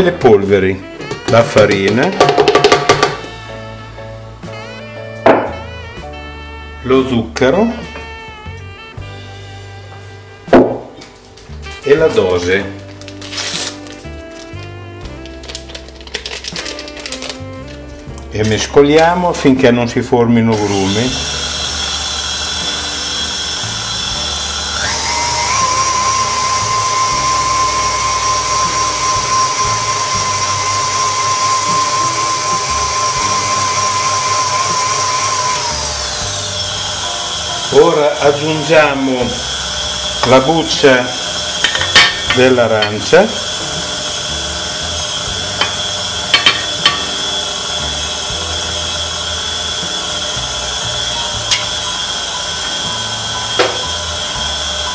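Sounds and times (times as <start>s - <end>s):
stand mixer motor whining: 20.5s - 54.9s.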